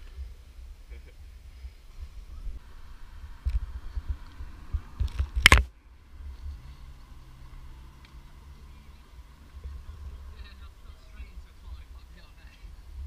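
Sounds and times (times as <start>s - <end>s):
wind buffeting microphone: 0.0s - 7.9s.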